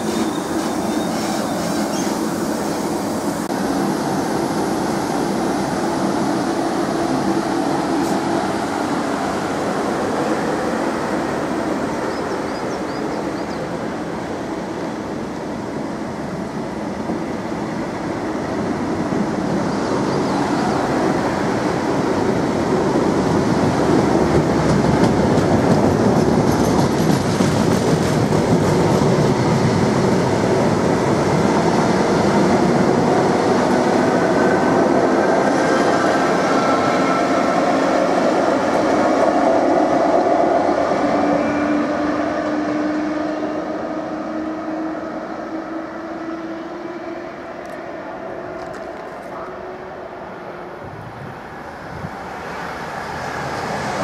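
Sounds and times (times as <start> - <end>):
electric locomotive hum: 0.0 - 54.0
train wheels clattering on rails: 21.5 - 40.4.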